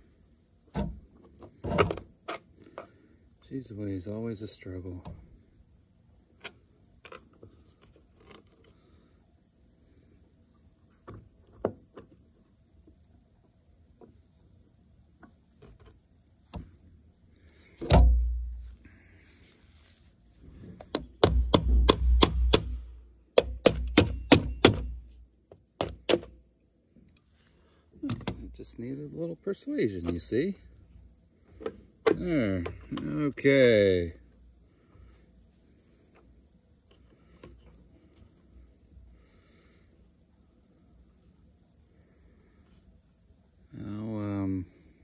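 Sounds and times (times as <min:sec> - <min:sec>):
insects buzzing: 0:00.0 - 0:45.0
knocks on metal: 0:17.8 - 0:18.4, 0:21.0 - 0:22.8, 0:23.4 - 0:25.0
heavy thump: 0:17.8 - 0:18.8, 0:20.9 - 0:22.9.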